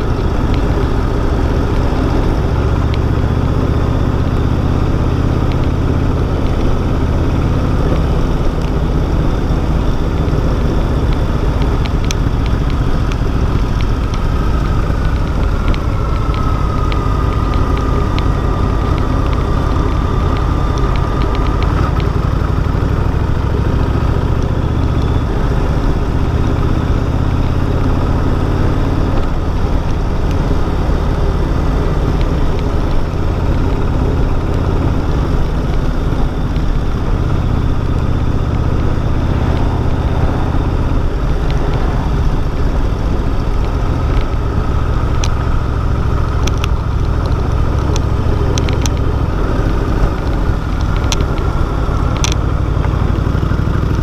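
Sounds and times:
motorcycle engine running: 0.0 - 54.0
wind noise: 0.0 - 54.0
faint ticks: 11.1 - 23.0, 43.0 - 54.0.

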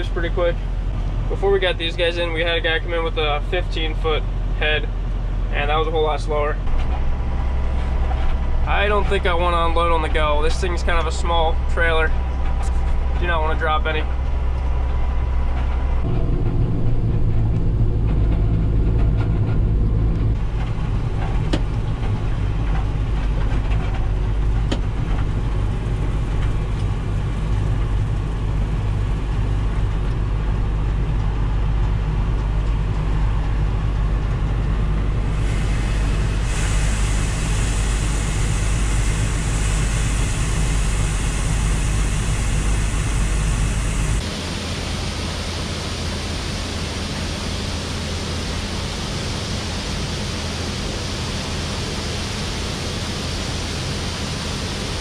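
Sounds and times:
tractor and combine engines running: 0.0 - 55.0
grain pouring hiss: 35.2 - 44.2.

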